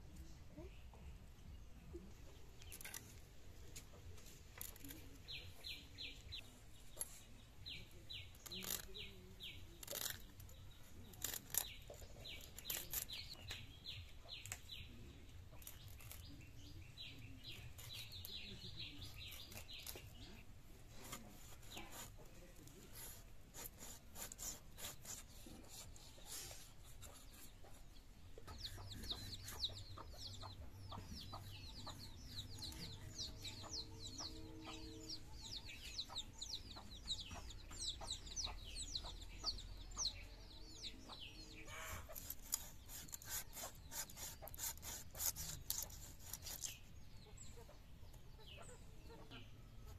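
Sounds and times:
chicks peeping: 0:25.0 - 0:49.9
chickens clucking: 0:25.5 - 0:44.6, 0:46.7 - 0:49.9.

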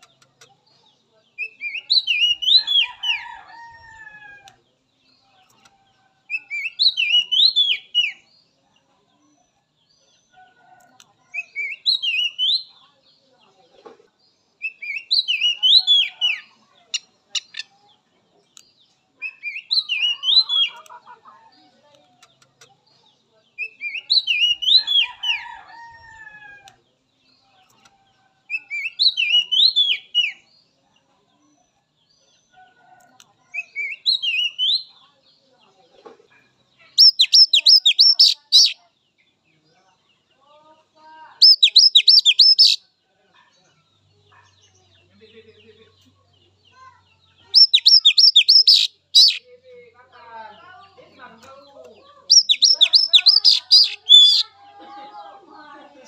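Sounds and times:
bird whistled song phrase: 0:41.4 - 0:42.8, 0:47.6 - 0:49.4, 0:52.3 - 0:54.4.

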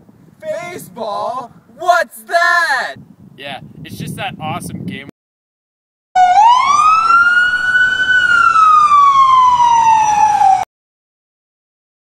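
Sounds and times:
ambulance siren wailing: 0:06.2 - 0:10.7.

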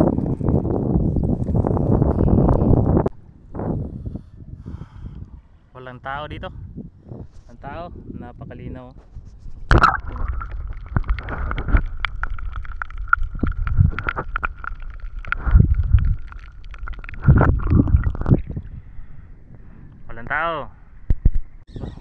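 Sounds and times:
water sloshing and gurgling: 0:09.5 - 0:20.1.

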